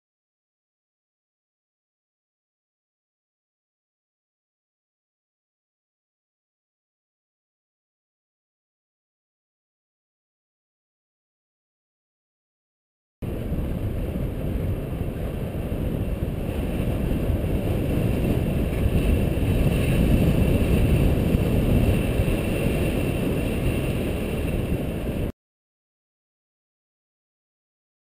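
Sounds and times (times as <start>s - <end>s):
wind buffeting microphone: 13.2s - 25.3s.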